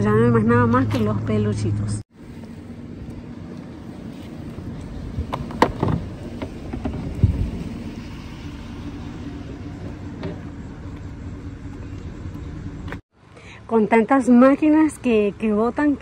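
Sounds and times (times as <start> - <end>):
steady low rumble: 0.0 - 13.0
plastic knocks and bumps: 5.2 - 7.4.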